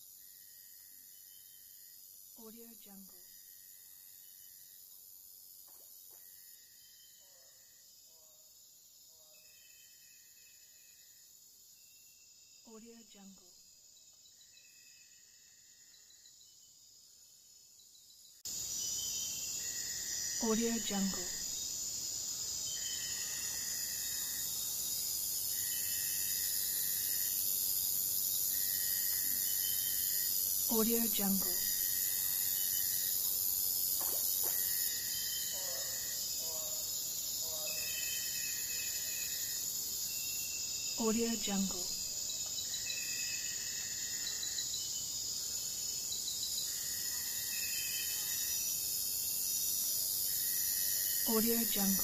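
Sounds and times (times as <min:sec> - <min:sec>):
insects chorus: 0:13.8 - 0:52.0.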